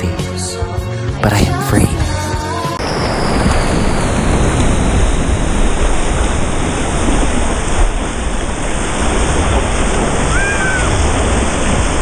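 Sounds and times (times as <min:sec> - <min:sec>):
wave water rushing and splashing: 0:02.8 - 0:12.0
wind noise on microphone: 0:02.8 - 0:12.0.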